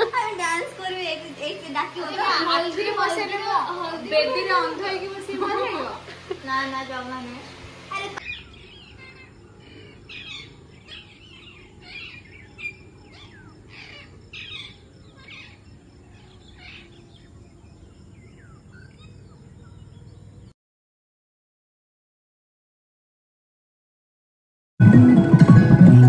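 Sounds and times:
small birds chirping: 0:00.0 - 0:20.5.

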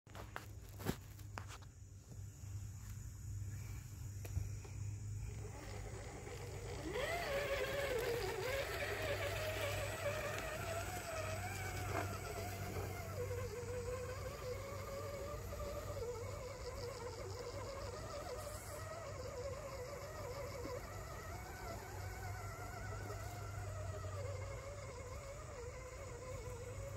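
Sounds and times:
electric motor and gearbox whining: 0:00.1 - 0:26.9.

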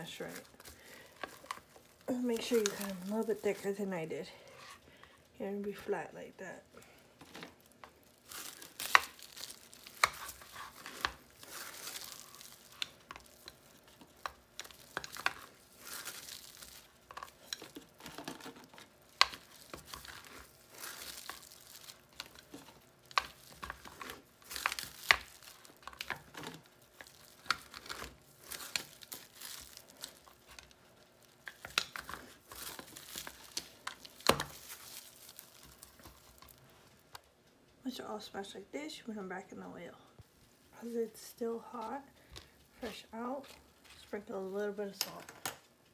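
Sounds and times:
cling wrap crinkling: 0:00.0 - 0:04.1, 0:06.4 - 0:37.3.

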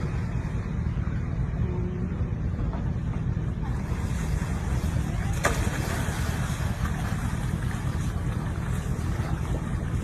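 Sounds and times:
water splashing: 0:00.0 - 0:10.0
wind buffeting microphone: 0:00.0 - 0:10.0.

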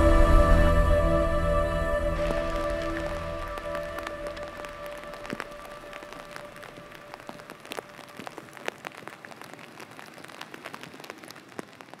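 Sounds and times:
background music: 0:00.0 - 0:06.4
faint hiss: 0:00.0 - 0:12.0
raindrops pattering: 0:01.8 - 0:12.0.

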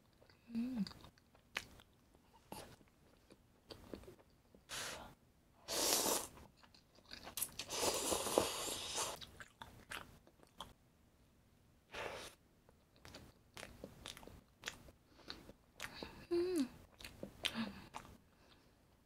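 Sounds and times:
crunchy chewing: 0:00.0 - 0:04.4, 0:05.9 - 0:10.8, 0:12.7 - 0:16.1, 0:16.9 - 0:18.7.

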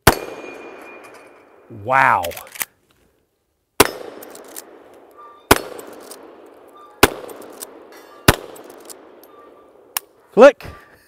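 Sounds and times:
shotgun shots echoing: 0:00.0 - 0:02.4, 0:03.8 - 0:10.2.

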